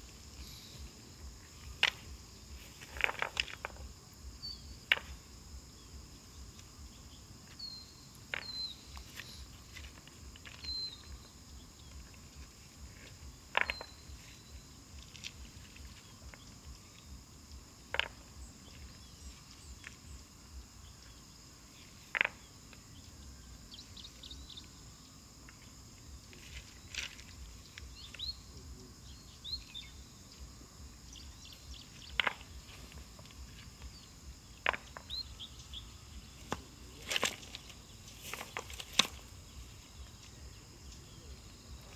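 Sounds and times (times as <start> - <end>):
high insect drone: 0.0 - 41.9
bird chirps: 5.7 - 9.8, 10.5 - 12.2, 13.2 - 15.0, 26.8 - 41.9.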